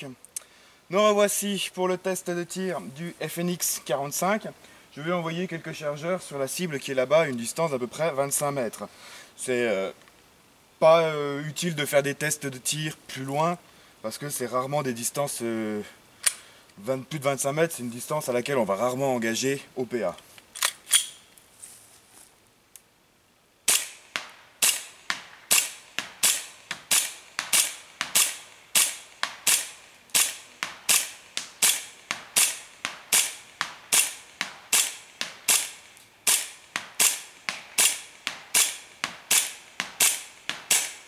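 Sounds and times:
airsoft pistol shots: 23.7s - 41.0s.

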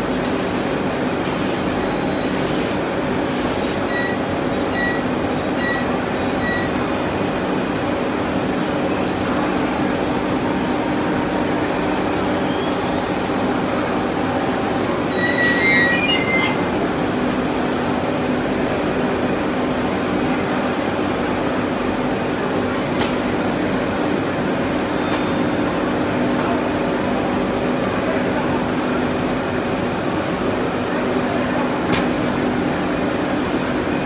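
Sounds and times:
high-pitched squeaks: 15.1s - 16.7s.

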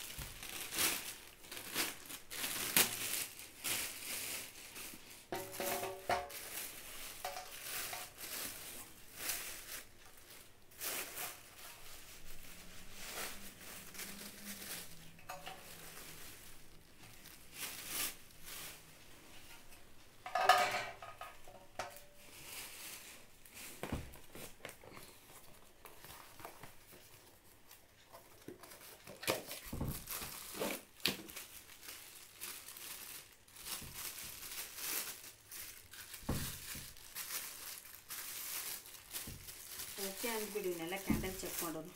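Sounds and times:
wrapping rustling and crinkling: 0.0s - 41.9s
metal trays clinking: 5.4s - 6.5s, 19.5s - 22.2s.

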